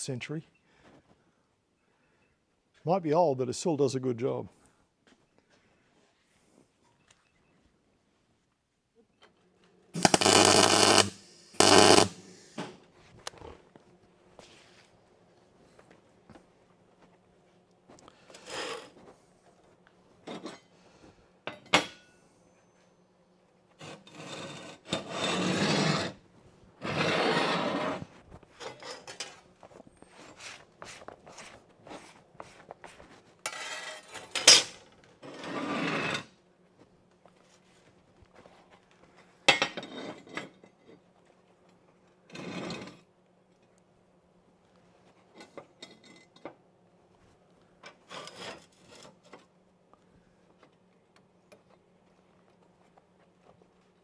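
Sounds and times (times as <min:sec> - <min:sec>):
crackling welding arc: 0:10.0 - 0:12.6.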